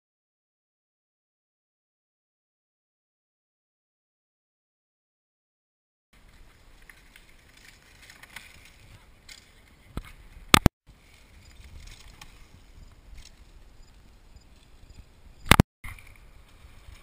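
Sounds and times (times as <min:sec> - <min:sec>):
loud sharp crackle: 0:06.2 - 0:14.8, 0:15.4 - 0:17.0.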